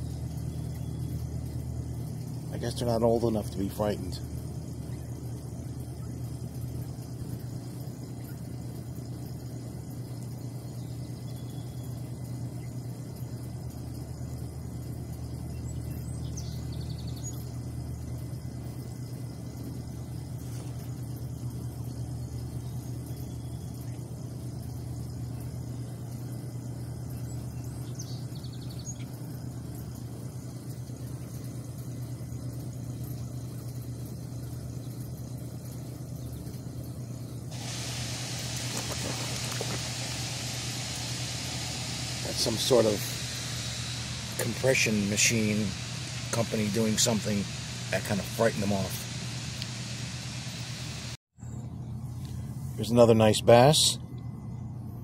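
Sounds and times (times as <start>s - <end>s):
machine engine droning: 0.0s - 53.2s
faint high chirps: 37.6s - 51.6s.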